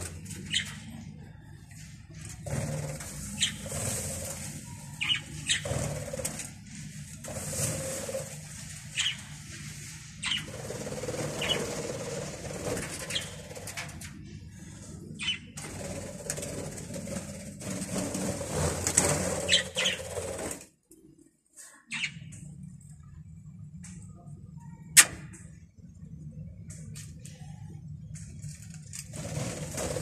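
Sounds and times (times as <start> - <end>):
wings fluttering: 0.0 - 20.8, 28.0 - 30.0
budgerigars chirping: 19.5 - 20.1.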